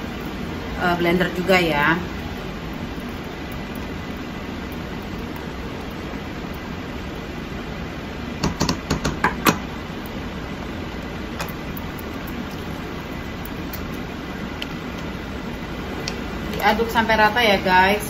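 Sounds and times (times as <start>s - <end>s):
steady background hum: 0.0s - 18.0s
spatula knocking on cooking pot: 8.4s - 9.7s.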